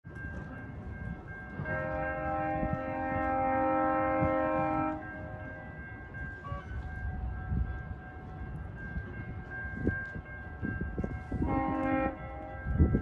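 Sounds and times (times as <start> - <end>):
train horn chord: 1.6 - 5.6, 6.3 - 6.8, 11.2 - 13.0.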